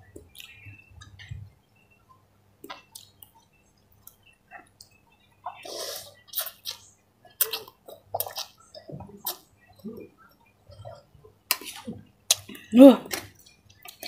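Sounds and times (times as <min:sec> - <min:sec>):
lip smacks and chewing: 0:02.6 - 0:10.1.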